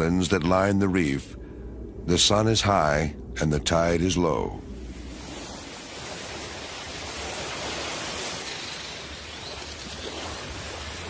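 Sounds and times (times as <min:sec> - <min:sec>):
surf washing on shore: 0:04.8 - 0:11.0.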